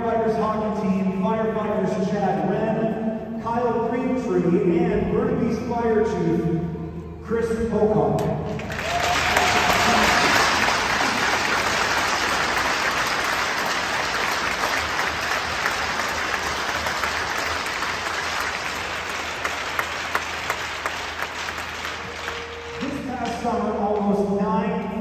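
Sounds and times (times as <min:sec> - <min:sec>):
crowd applauding: 0:08.4 - 0:23.8.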